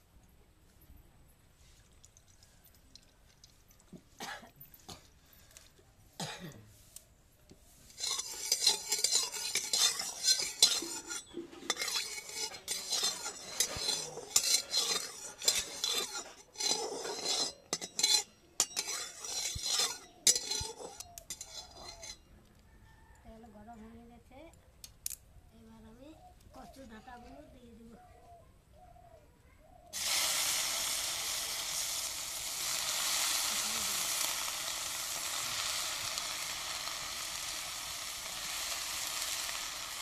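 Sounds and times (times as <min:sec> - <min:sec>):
metal spatula scraping a pan: 0:07.8 - 0:22.3.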